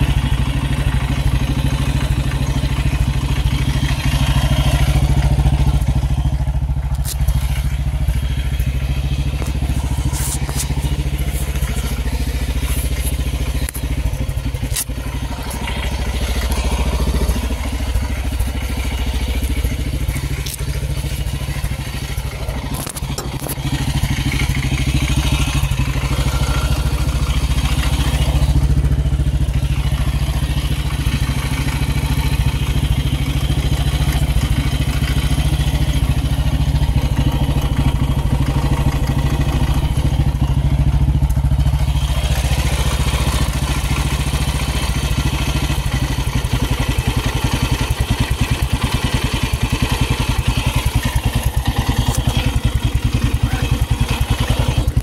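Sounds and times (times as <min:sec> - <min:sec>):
motorcycle engine running: 0:00.0 - 0:55.0
clicks: 0:06.8 - 0:17.6, 0:18.2 - 0:24.5.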